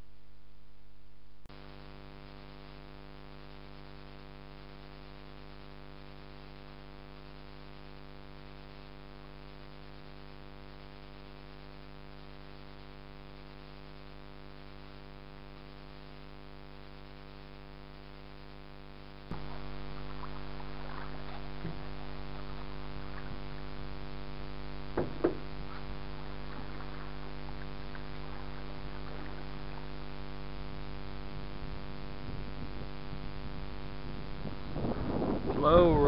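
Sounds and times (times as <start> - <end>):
steady hum: 0.0 - 36.0
water lapping: 19.3 - 24.4, 25.1 - 30.8
knocks on a boat hull: 25.0 - 25.5.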